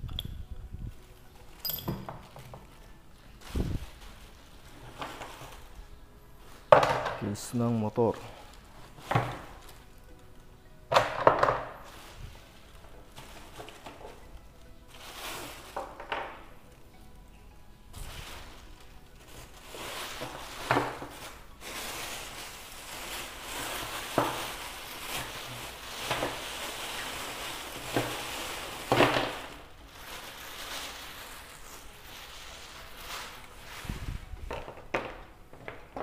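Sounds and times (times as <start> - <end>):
plastic bag rustling: 0.8 - 10.5, 11.2 - 16.9, 17.9 - 36.0
parts knocking inside bag: 6.7 - 7.5, 10.9 - 12.0, 19.4 - 31.4.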